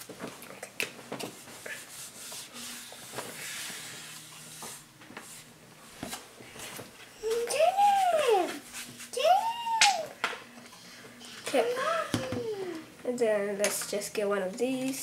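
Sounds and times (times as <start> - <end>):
brush working paint: 1.3 - 5.5.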